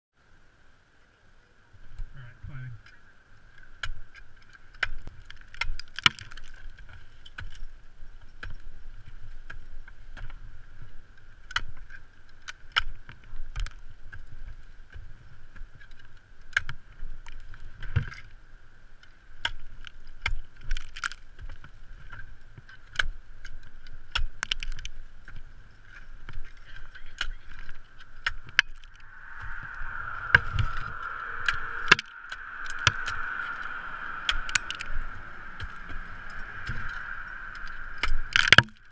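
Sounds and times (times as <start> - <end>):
ice axes striking ice: 3.7 - 10.4, 11.4 - 18.2, 19.4 - 26.4
faint high hum: 26.4 - 38.9.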